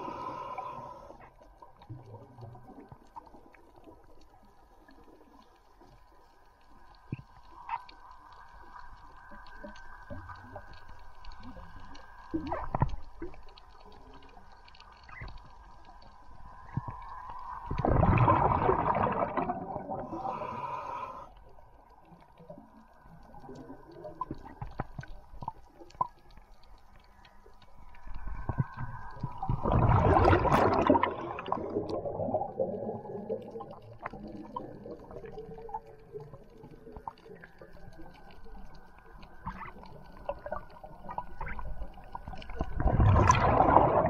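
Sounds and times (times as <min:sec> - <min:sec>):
underwater hum: 0:00.0 - 0:44.0
gurgling rushing water: 0:17.6 - 0:20.8, 0:27.8 - 0:36.8, 0:39.4 - 0:44.0.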